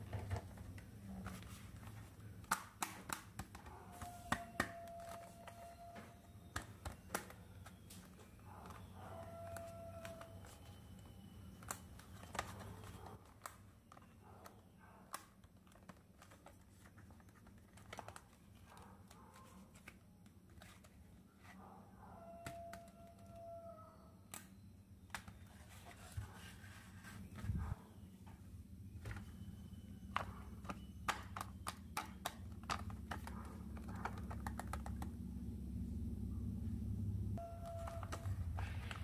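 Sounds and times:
squeaks and crinkles: 0:03.0 - 0:35.1, 0:37.4 - 0:39.0
low steady hum: 0:19.7 - 0:39.0.

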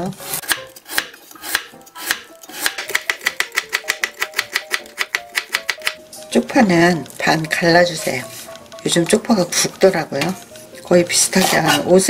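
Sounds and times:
knife chopping on wooden board: 0:00.3 - 0:06.0.

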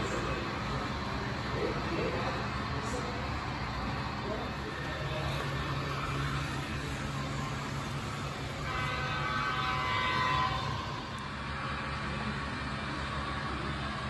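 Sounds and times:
model locomotive engine rumble: 0:00.0 - 0:14.0
multi-note train horn: 0:05.9 - 0:12.5.

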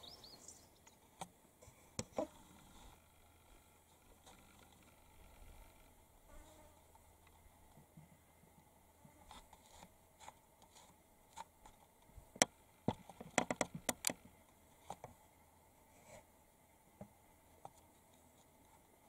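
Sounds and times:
animal scratching in dry soil: 0:09.2 - 0:11.8.

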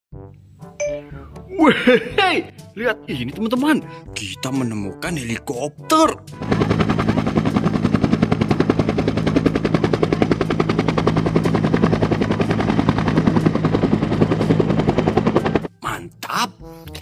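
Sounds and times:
helicopter rotor chopping: 0:04.9 - 0:15.8.

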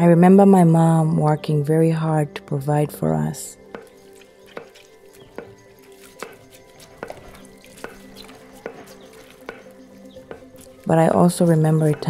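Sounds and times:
soft background music: 0:00.0 - 0:12.0
pestle pounding in wooden mortar: 0:03.7 - 0:12.0.

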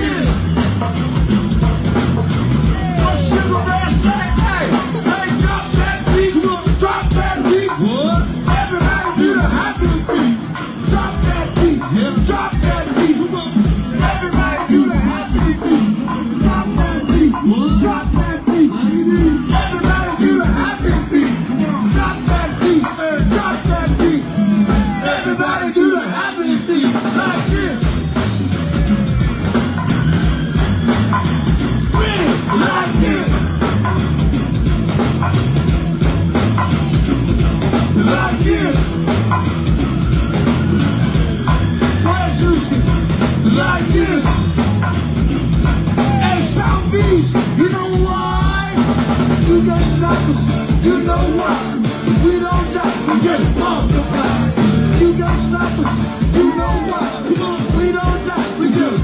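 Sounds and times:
drum and percussion groove: 0:00.0 - 0:59.0
live band playing loud: 0:00.0 - 0:59.0.

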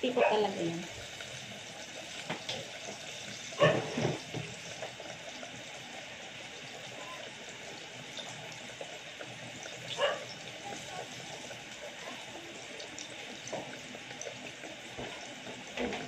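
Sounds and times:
banana peels deep-frying sizzle: 0:00.0 - 0:16.0.

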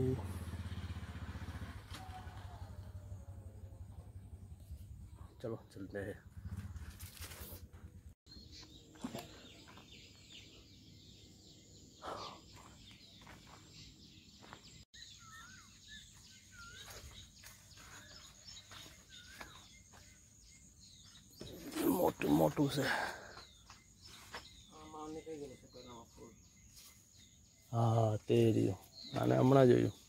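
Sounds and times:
small birds chirping: 0:02.0 - 0:30.0
footsteps on dry ground: 0:12.5 - 0:14.9, 0:15.6 - 0:24.7.

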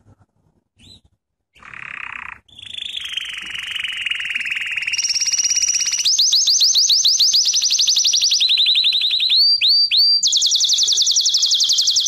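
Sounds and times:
canary singing trills: 0:00.8 - 0:12.0
higher bird trill: 0:01.6 - 0:08.3.

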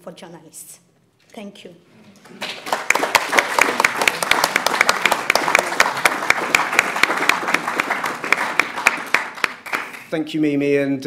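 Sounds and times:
audience applauding: 0:02.2 - 0:10.1.

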